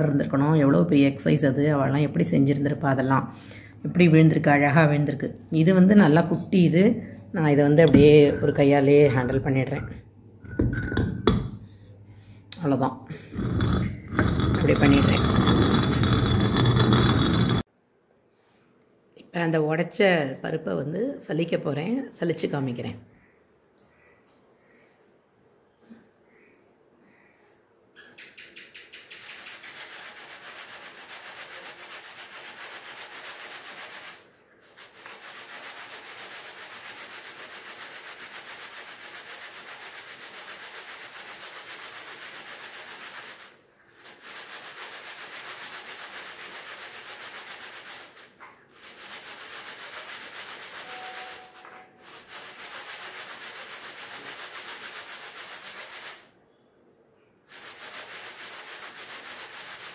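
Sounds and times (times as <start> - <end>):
dry grains rustling in sieve: 13.3 - 17.7, 29.3 - 56.3, 57.5 - 59.9.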